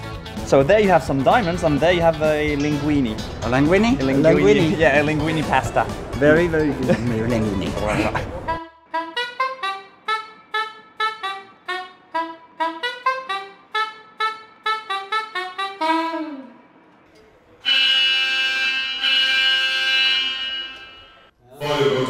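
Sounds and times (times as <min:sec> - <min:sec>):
small brass horn notes: 0:08.5 - 0:16.8, 0:17.6 - 0:22.0
loud steady alarm tone: 0:17.6 - 0:22.0.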